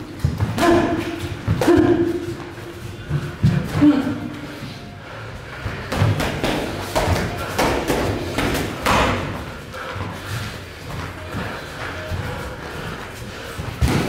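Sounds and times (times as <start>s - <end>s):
boxing gloves thudding: 13.8s - 14.0s.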